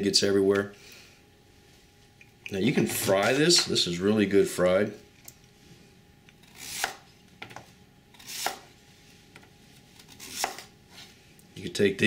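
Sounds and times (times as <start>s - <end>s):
knife slicing root: 6.4s - 7.0s, 8.2s - 8.7s, 10.1s - 10.7s.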